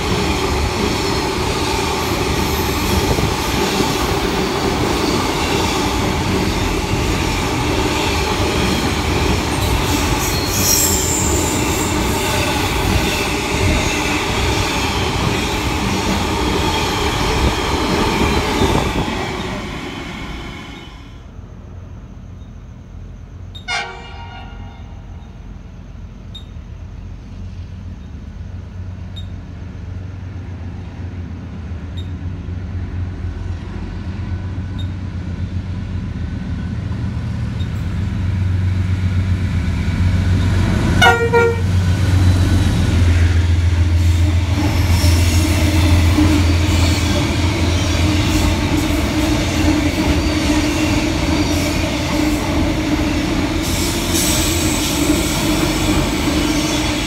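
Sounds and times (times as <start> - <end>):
locomotive rumble: 0.0 - 57.0
train horn toots: 23.6 - 25.2, 40.9 - 41.9.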